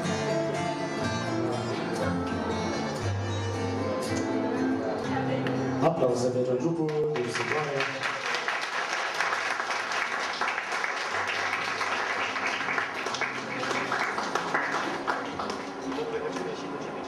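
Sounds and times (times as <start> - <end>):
audience applauding: 6.9 - 16.9.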